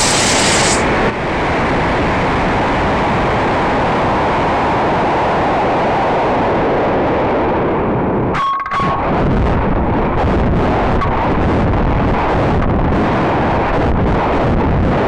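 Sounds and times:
rocket rushing noise: 0.0s - 0.9s.

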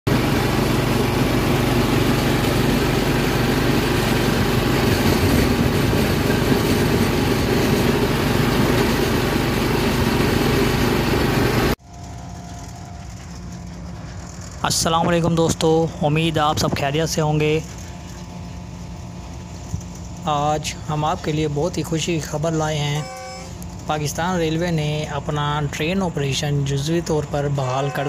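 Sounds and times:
locomotive engine rumble: 0.1s - 28.0s.

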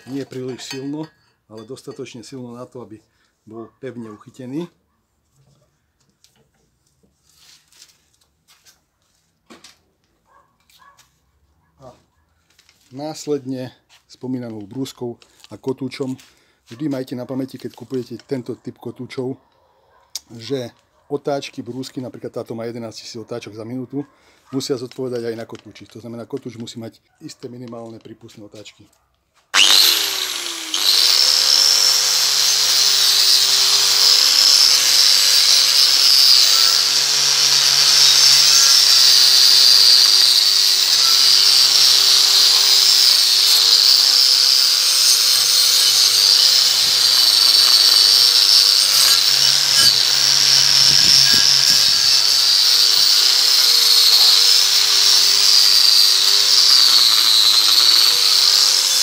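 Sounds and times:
angle grinder wire wheel scrubbing: 29.6s - 59.0s.

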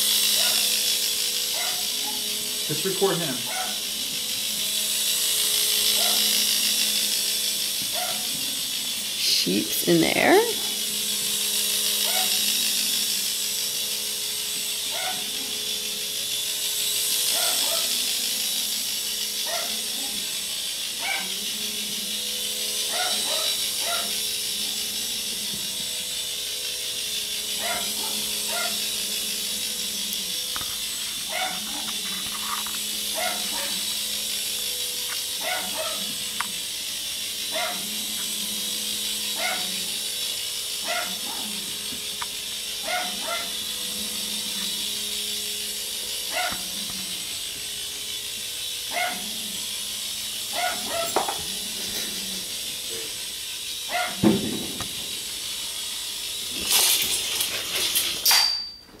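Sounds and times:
toy helicopter humming: 0.0s - 59.0s
dog whining: 50.6s - 51.2s.

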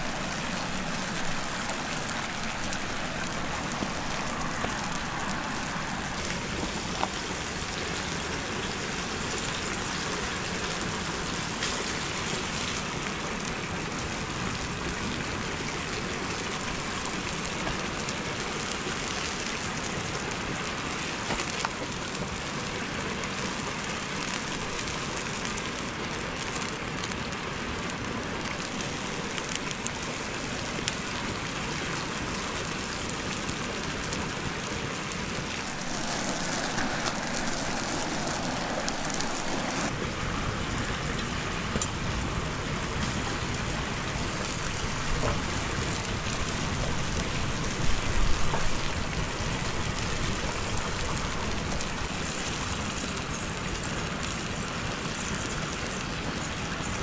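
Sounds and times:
food sizzling in hot oil: 0.0s - 13.4s, 35.4s - 39.9s.

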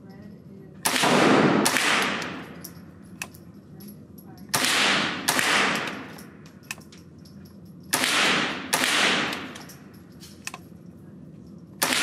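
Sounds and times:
rifle shots echoing indoors: 0.8s - 2.8s, 4.4s - 6.8s, 7.8s - 10.0s, 11.8s - 12.0s.

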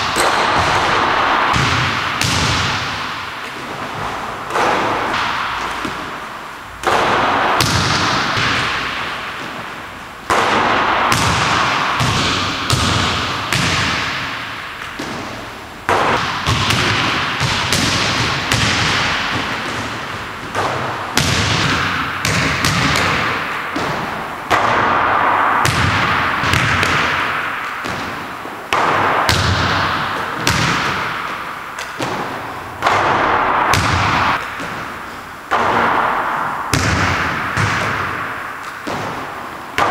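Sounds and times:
basketball hitting hoop: 0.0s - 39.9s.

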